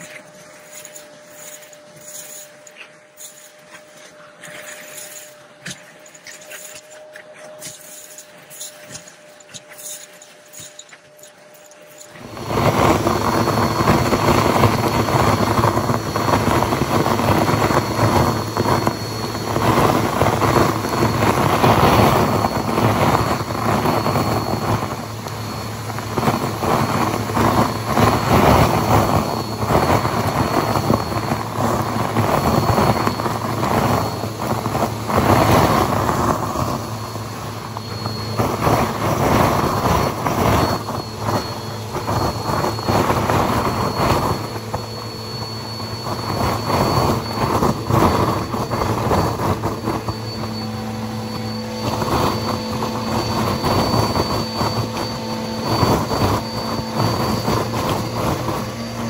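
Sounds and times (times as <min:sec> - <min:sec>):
vacuum cleaner motor whine: 0:00.0 - 0:59.0
confetti rushing up vacuum hose: 0:12.0 - 0:59.0.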